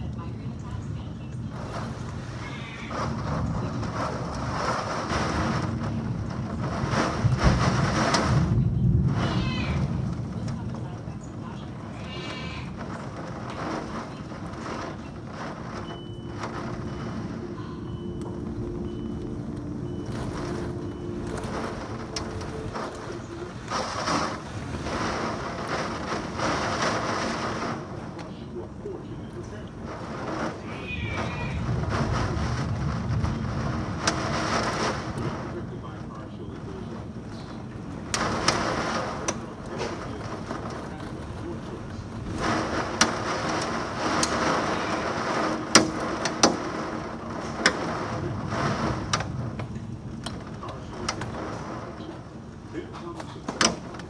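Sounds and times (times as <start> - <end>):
hailstones knocking: 0.0 - 54.0
rain downpour: 0.0 - 54.0
wind rushing: 29.7 - 36.0.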